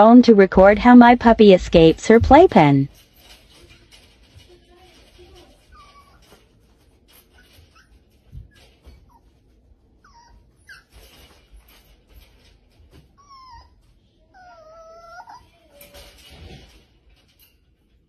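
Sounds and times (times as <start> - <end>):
puppy whining: 5.5 - 16.2.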